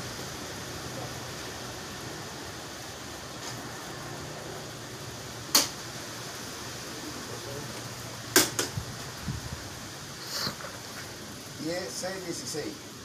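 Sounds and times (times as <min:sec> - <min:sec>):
fan humming: 0:00.0 - 0:13.0.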